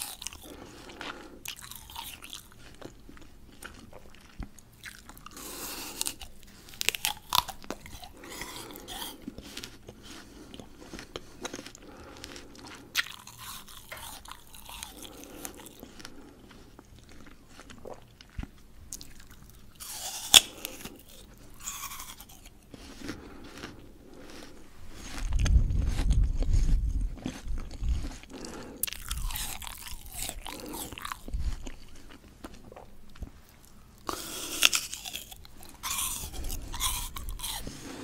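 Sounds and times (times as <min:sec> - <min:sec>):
person crunching raw fruit: 0:00.0 - 0:38.0.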